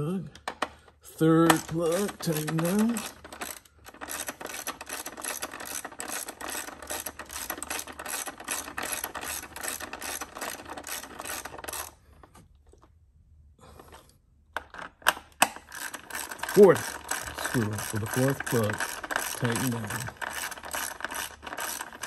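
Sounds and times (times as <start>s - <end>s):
ratchet wrench clicking: 1.5s - 11.9s, 15.7s - 22.0s.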